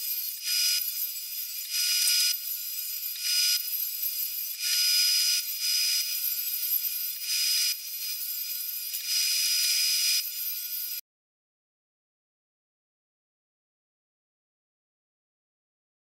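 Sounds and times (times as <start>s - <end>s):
table saw cutting a board: 0.0s - 11.0s.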